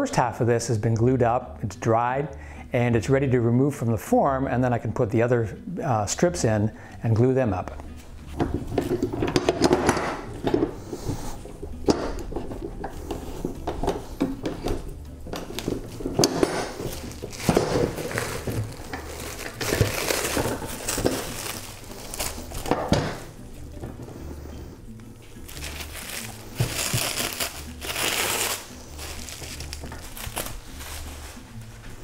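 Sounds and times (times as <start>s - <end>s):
metal clamps clanking: 13.6s - 19.9s
plastic wrap crinkling: 15.5s - 23.4s, 25.4s - 32.0s.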